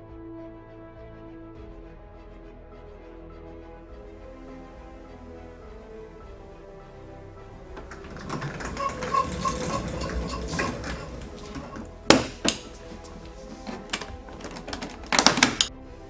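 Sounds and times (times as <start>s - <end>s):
background music: 0.0s - 16.0s
wheeled plastic case rattling: 7.7s - 15.7s.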